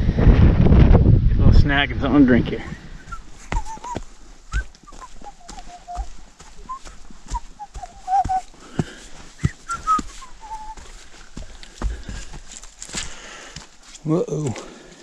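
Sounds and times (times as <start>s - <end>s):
footsteps on dirt trail: 2.5s - 15.0s
person whistling a tune: 3.0s - 8.5s, 9.4s - 10.9s.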